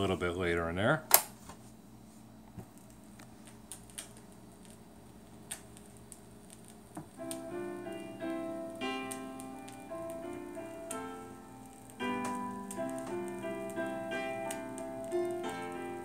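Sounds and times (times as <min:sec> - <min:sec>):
vinyl groove hiss: 0:00.0 - 0:16.0
vinyl record pops: 0:02.4 - 0:16.0
melody of held notes: 0:07.2 - 0:16.0.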